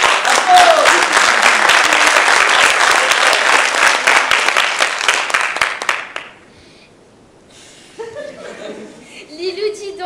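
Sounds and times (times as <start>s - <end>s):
audience applauding: 0.0s - 6.4s.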